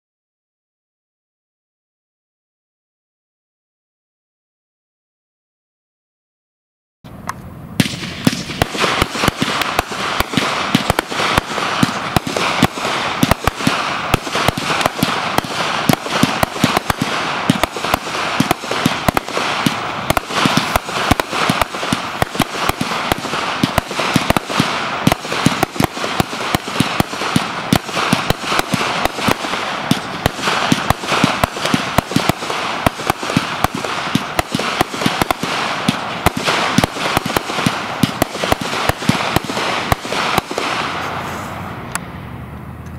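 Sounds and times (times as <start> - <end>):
firework bangs: 7.2 - 42.8
firework hiss: 7.8 - 42.4.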